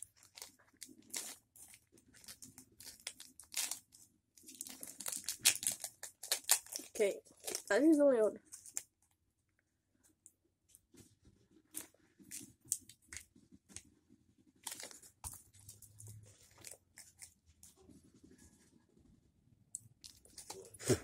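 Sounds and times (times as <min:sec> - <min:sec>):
foil wrapper crinkling: 0:00.0 - 0:08.9, 0:14.6 - 0:17.3.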